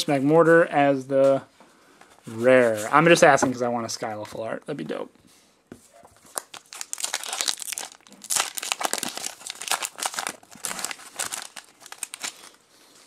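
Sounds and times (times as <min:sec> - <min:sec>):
foil wrapper tearing and crinkling: 0:06.3 - 0:13.0.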